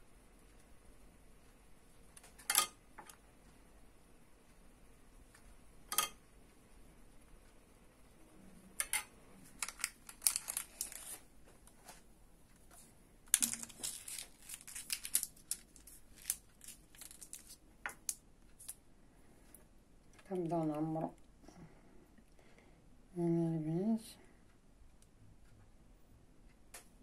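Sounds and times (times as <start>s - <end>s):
paper crinkling and rustling: 9.5s - 17.6s.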